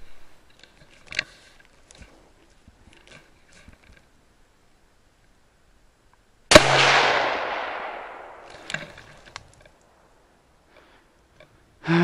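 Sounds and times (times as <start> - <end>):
rifle shot: 6.5 - 9.1.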